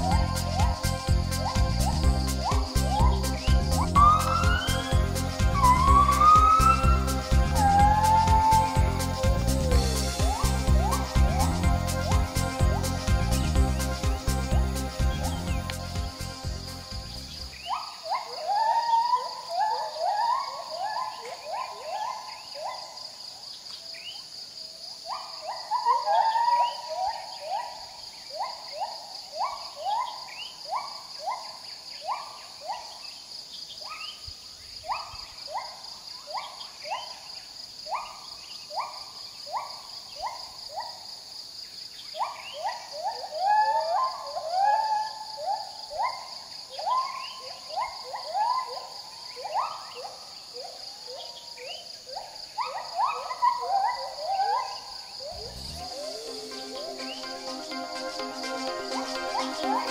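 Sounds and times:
gibbons hooting: 0.0 - 13.6, 17.6 - 23.0, 25.1 - 31.4, 42.2 - 51.3, 52.1 - 59.9
high insect drone: 0.0 - 59.9.

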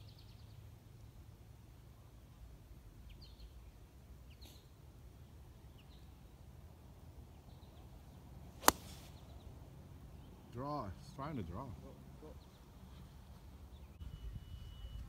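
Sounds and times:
faint bird chirps: 3.0 - 4.9, 12.2 - 15.0
golf ball struck by driver: 8.6 - 9.1.

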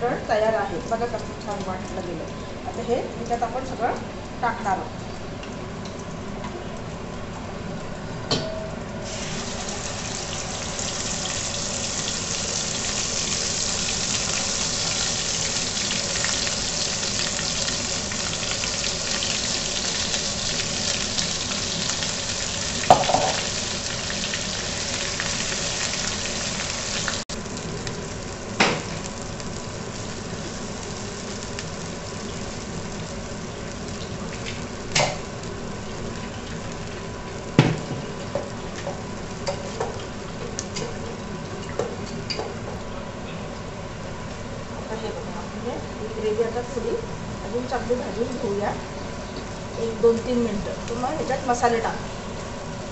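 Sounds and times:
oil and spices sizzling: 0.0 - 42.9, 43.5 - 52.9.

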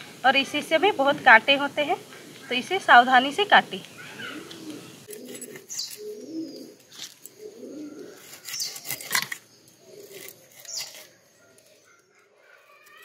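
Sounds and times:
bird calling low: 0.9 - 8.9
knife scraping fish scales: 8.1 - 9.4, 10.0 - 11.6.

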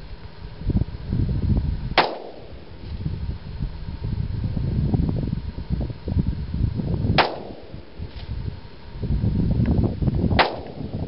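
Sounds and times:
faint gunshot report: 2.0 - 2.5, 7.2 - 7.7, 10.4 - 10.8
pistol shots: 2.0 - 2.6, 7.2 - 7.7, 10.4 - 10.8.

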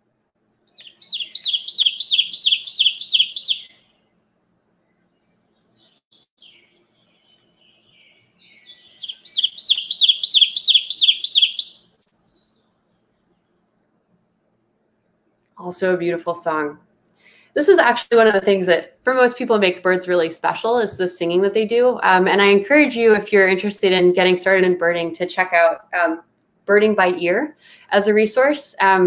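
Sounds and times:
bird song rapid high phrase: 0.6 - 3.9, 5.5 - 12.7
faint bird calls: 5.9 - 12.7.

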